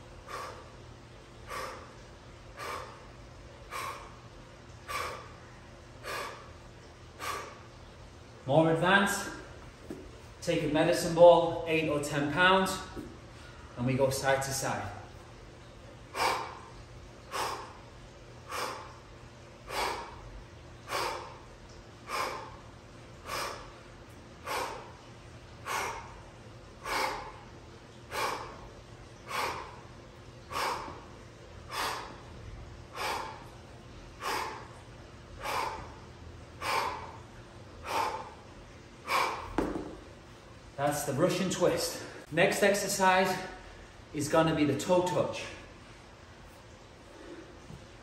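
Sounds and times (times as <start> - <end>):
man breathing out forcefully: 0.2 - 0.8, 1.4 - 4.2, 4.8 - 5.4, 6.0 - 6.6, 7.2 - 7.7, 16.1 - 27.5, 28.1 - 36.0, 36.6 - 40.1.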